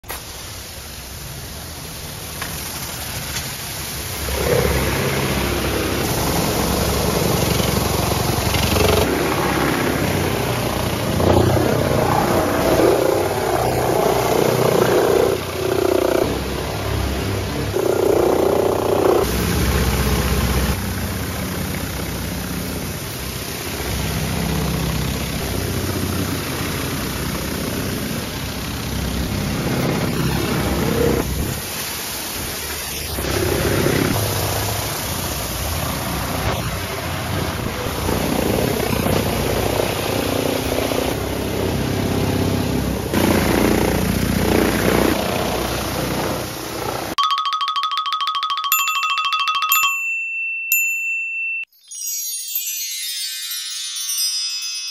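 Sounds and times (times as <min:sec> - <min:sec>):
water jets hissing: 0:00.0 - 0:42.0
pressure washer drone: 0:00.0 - 0:47.2.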